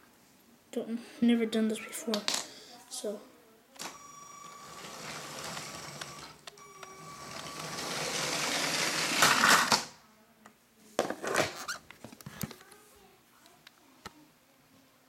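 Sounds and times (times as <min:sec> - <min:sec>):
toy train motor whirring and rattling: 0:04.4 - 0:09.9
toy train crashing: 0:07.2 - 0:10.0.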